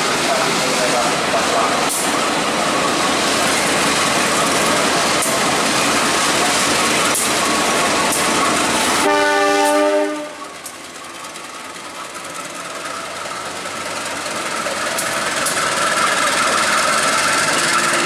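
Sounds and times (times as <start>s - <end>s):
diesel locomotives passing: 0.0s - 18.0s
locomotive horn: 9.0s - 10.5s.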